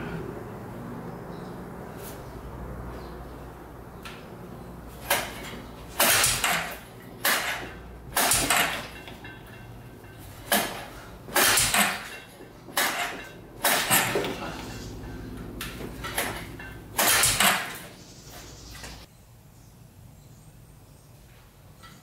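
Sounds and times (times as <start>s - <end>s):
recoil starter rope pulls: 10.2s - 15.0s.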